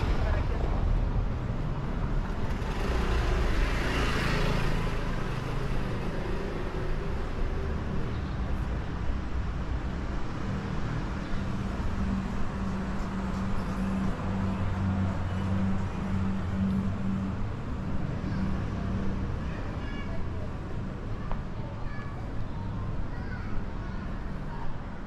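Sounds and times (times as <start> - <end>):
motor scooter passing: 2.2 - 7.8.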